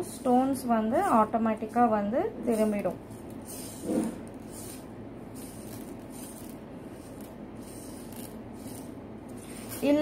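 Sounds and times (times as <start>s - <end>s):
rhinestones rattling: 2.5s - 10.0s
sponge rubbing on a board: 2.5s - 10.0s.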